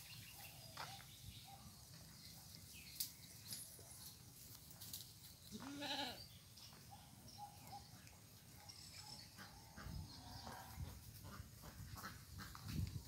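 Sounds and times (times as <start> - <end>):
goat bleating: 5.5 - 6.2.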